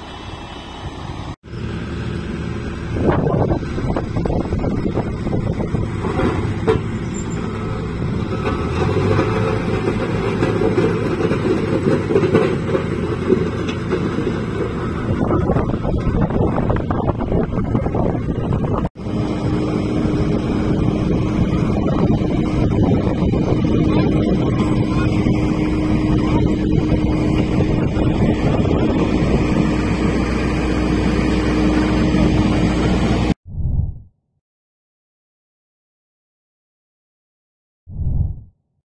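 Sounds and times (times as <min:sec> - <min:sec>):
asphalt paver engine: 0:00.0 - 0:33.4
road roller diesel engine: 0:00.0 - 0:33.4.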